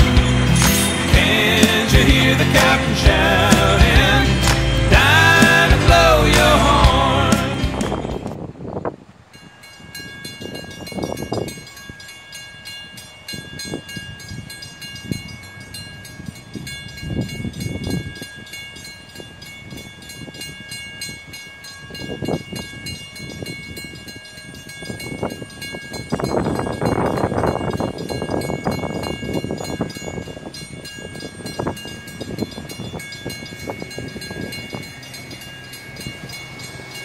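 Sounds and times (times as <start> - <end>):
vehicles passing by: 0.0 - 8.4, 32.0 - 37.0
crossing warning bell ringing: 0.0 - 37.0.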